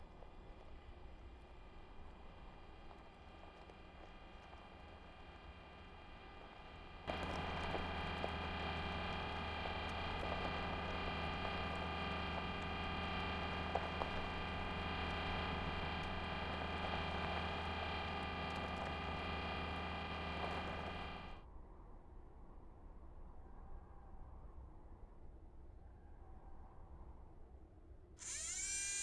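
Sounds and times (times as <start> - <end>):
droning hum of held tones: 0.0 - 21.4, 28.2 - 29.0
faint ticks: 0.1 - 21.4.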